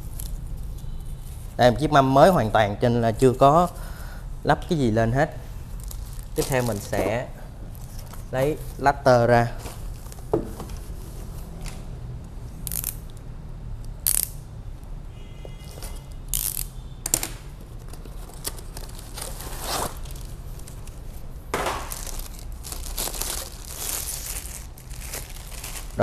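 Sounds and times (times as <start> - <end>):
plastic bag rustling: 5.7 - 8.8, 18.1 - 26.0.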